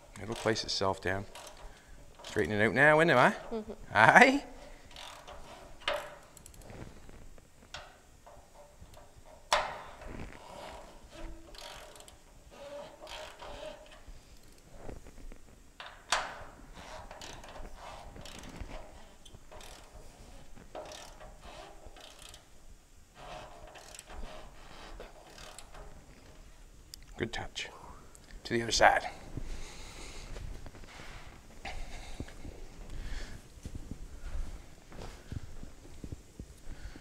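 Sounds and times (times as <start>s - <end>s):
socket wrench ratcheting: 0.2s - 0.7s, 1.3s - 2.5s, 4.9s - 6.7s, 7.7s - 14.6s, 15.8s - 22.5s, 23.2s - 26.0s.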